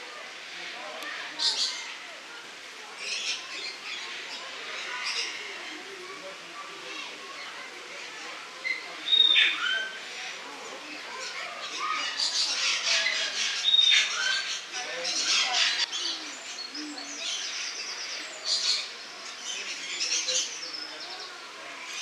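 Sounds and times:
lorikeets chattering and screeching: 7.3 - 22.0.

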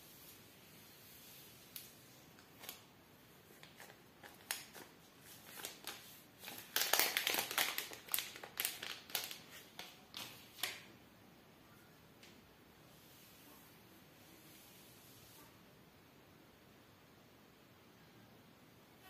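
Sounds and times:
plastic sleeve crinkling: 1.7 - 10.9.

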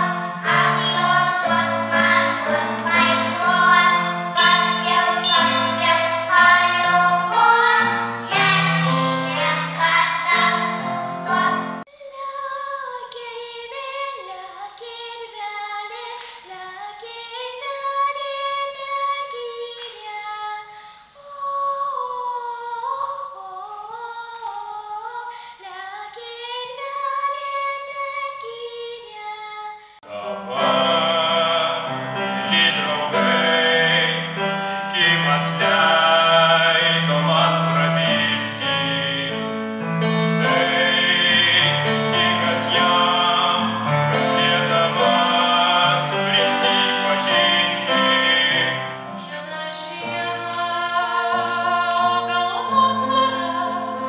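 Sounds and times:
child singing unaccompanied: 0.0 - 29.8, 49.1 - 54.0
young singer with piano: 0.0 - 54.0.

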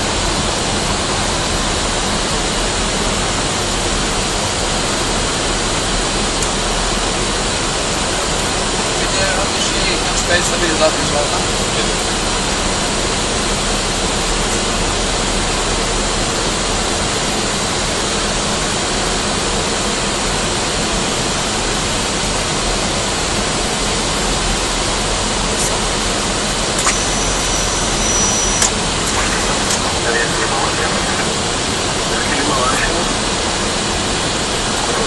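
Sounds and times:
jet engine and airflow rush: 0.0 - 35.0
faint thin high tone: 26.8 - 29.8.

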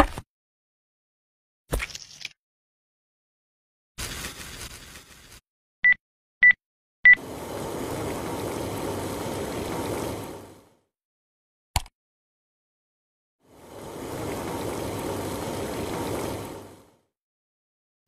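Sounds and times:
pan sizzling: 7.2 - 10.6, 13.6 - 16.9.

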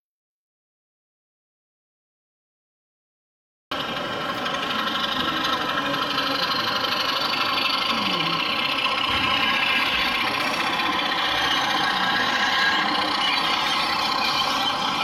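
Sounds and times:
model train running: 3.7 - 15.0.

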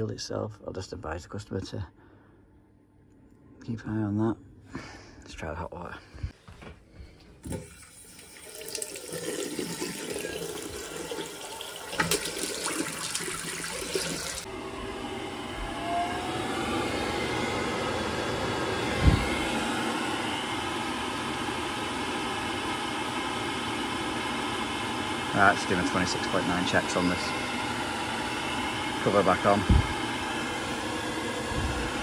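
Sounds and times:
tap water running into sink: 7.4 - 14.4
boiler rushing noise: 14.0 - 32.0.

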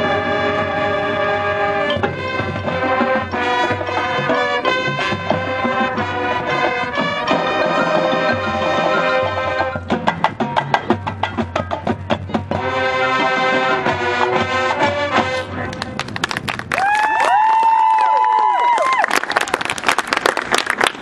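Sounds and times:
marching band brass chords: 0.0 - 16.2
percussion hits: 0.0 - 16.7.

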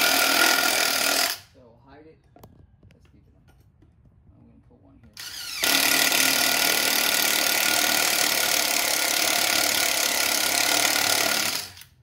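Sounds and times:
cordless drill boring into timber: 0.0 - 1.5, 5.2 - 11.9.

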